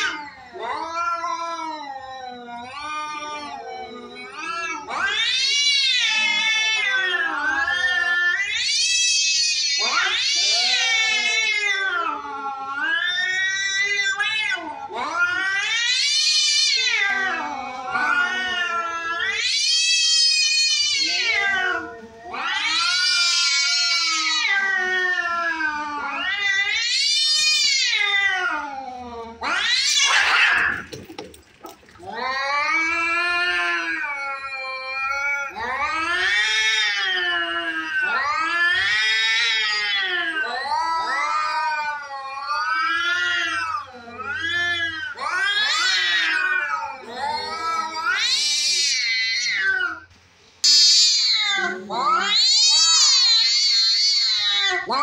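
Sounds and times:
cats yowling: 0.0 - 55.0
cat hissing: 25.8 - 41.4, 42.0 - 55.0.

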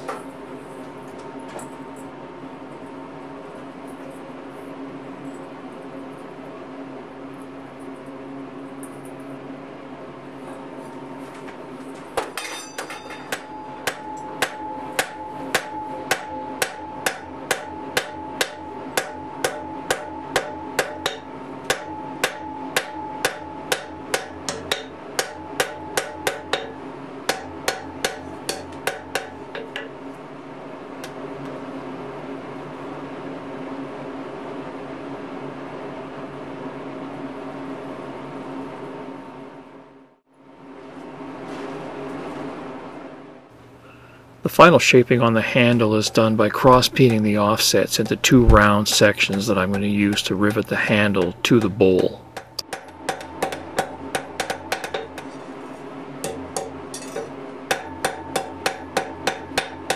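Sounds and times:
steady hum: 0.0 - 59.9
hammer striking iron on anvil: 12.2 - 30.0, 45.6 - 55.4, 56.2 - 59.9.

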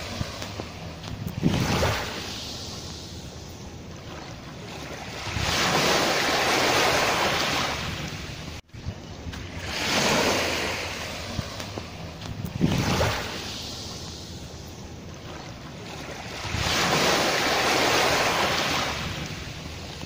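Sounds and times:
waves washing up a beach: 0.0 - 20.0.

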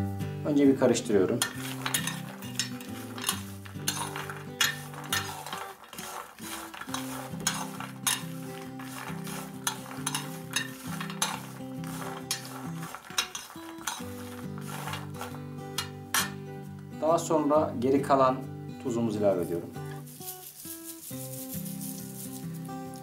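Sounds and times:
soft background music: 0.0 - 23.0
peanuts rattling in glass dish: 1.4 - 15.9, 19.8 - 23.0.

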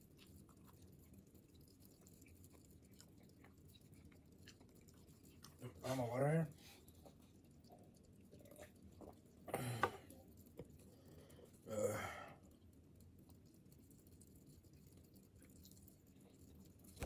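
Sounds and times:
man sighing: 9.5 - 10.0, 11.7 - 12.4.

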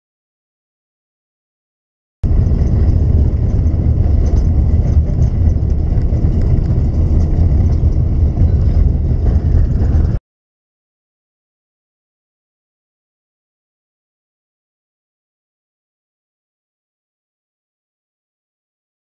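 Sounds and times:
bus engine rumbling: 2.2 - 10.2.

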